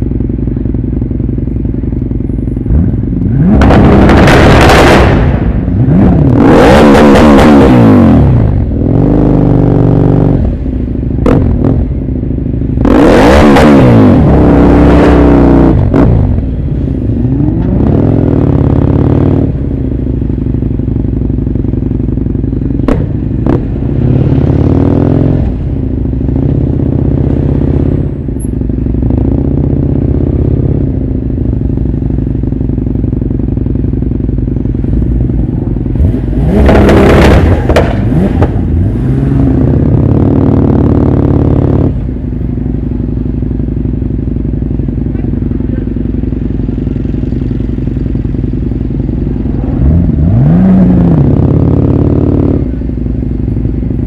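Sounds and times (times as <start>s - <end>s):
engines revving in traffic: 0.0s - 54.0s
sharp cracks: 36.6s - 38.6s.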